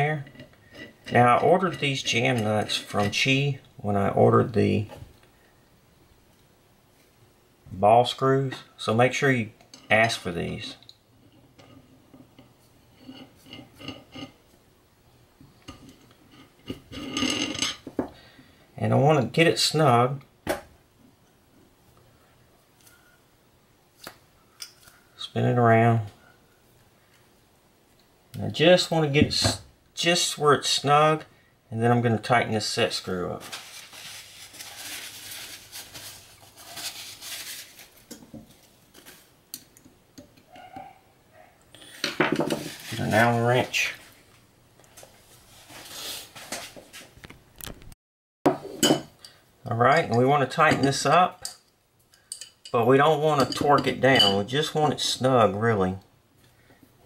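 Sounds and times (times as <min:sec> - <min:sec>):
light metal scraping: 0:00.0 - 0:03.5, 0:09.7 - 0:14.4, 0:33.3 - 0:39.3, 0:41.8 - 0:44.3
rag rustling: 0:33.4 - 0:39.3.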